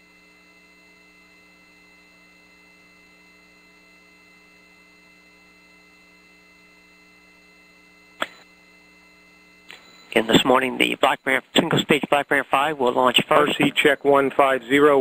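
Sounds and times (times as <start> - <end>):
faint electrical hum: 0.0 - 15.0
steady high tones: 8.2 - 15.0.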